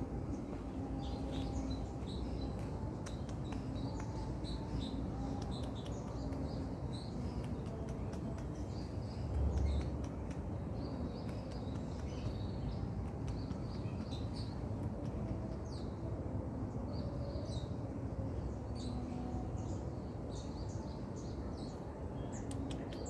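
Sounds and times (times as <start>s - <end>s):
small birds chirping: 0.0s - 16.0s
low background noise: 0.0s - 23.0s.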